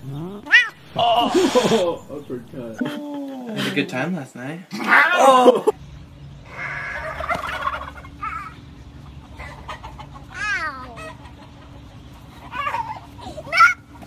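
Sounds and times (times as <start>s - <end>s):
chickens clucking and squawking: 4.7s - 14.0s
loud arching chicken call: 6.5s - 8.6s.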